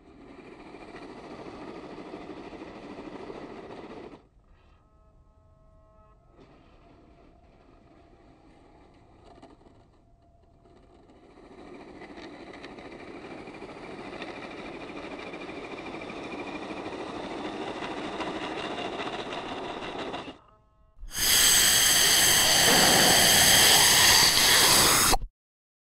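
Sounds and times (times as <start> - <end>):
loud steady outro sound: 21.0 - 25.2
toy car electric motor whining: 21.0 - 25.2.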